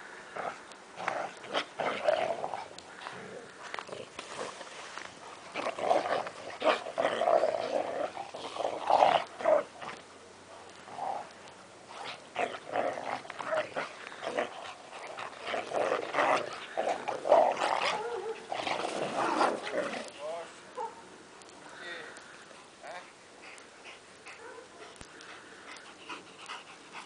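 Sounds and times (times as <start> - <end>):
dogs growling while play-fighting: 0.3 - 10.0, 10.6 - 20.2.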